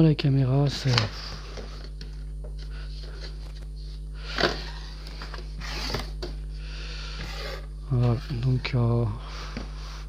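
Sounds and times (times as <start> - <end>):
steady low hum: 0.0 - 10.0
cardboard scraping rustle: 0.7 - 6.1.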